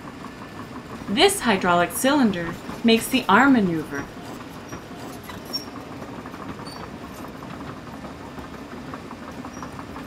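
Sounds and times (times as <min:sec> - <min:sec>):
low machine hum: 0:00.0 - 0:10.0
short squeaks: 0:04.6 - 0:05.8, 0:06.6 - 0:07.3.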